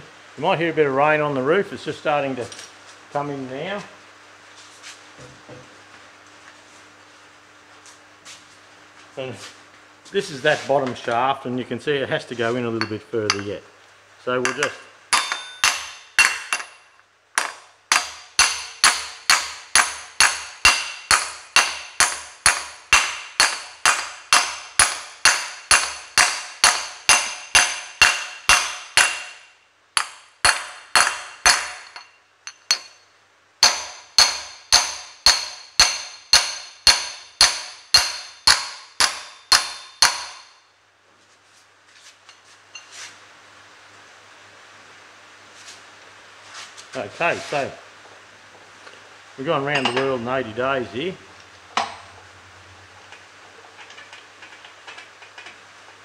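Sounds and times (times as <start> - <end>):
hammer striking metal plate: 14.4 - 33.0, 33.6 - 40.6.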